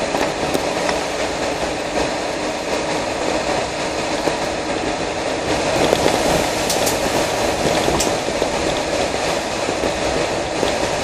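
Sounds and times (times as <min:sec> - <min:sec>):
car engine and road rumble: 0:00.0 - 0:11.0
tyres on wet tarmac: 0:00.0 - 0:11.0.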